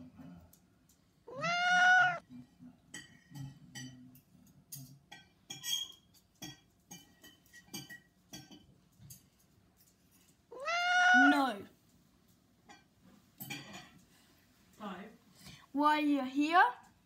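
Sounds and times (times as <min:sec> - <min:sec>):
cat meowing: 0:01.3 - 0:02.2, 0:10.5 - 0:11.6
light clicks and metallic clinks: 0:02.6 - 0:10.5, 0:11.8 - 0:14.9.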